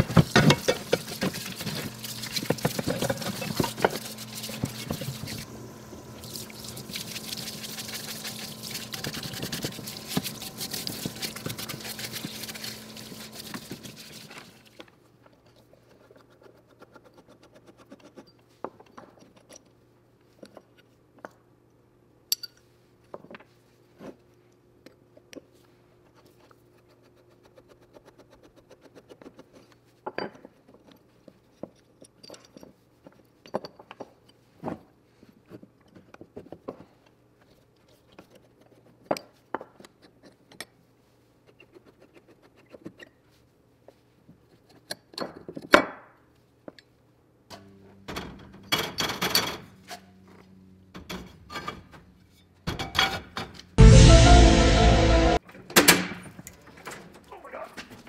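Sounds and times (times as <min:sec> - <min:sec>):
steady hiss with low hum: 0:00.0 - 0:16.2.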